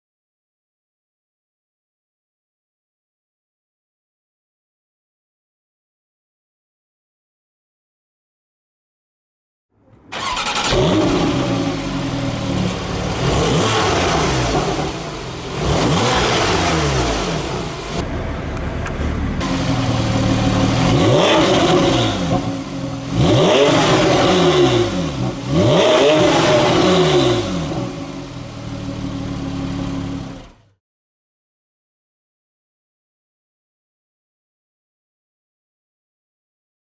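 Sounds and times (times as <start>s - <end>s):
car engine revving: 10.1s - 30.6s.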